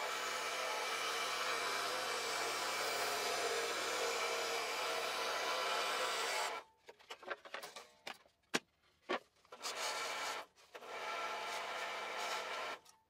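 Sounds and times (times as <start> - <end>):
scroll saw cutting wood: 0.0 - 6.7, 9.5 - 12.9.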